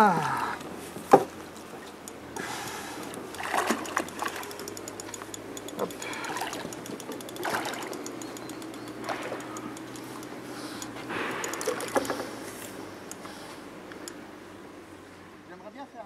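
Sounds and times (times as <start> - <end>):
fish splashing and thrashing: 0.6 - 13.2.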